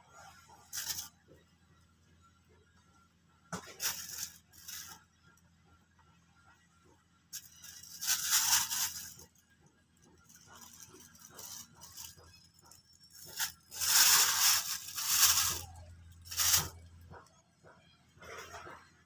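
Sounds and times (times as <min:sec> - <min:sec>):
plastic bag crinkling: 0:07.4 - 0:09.2, 0:13.1 - 0:16.9.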